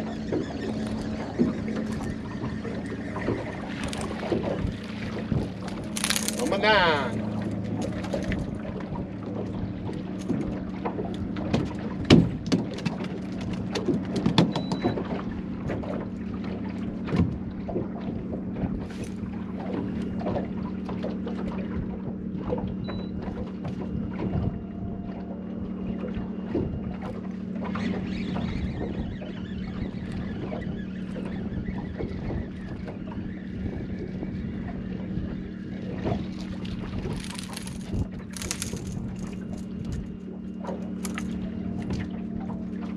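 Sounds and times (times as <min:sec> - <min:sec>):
electric trolling motor humming: 0:00.0 - 0:42.9.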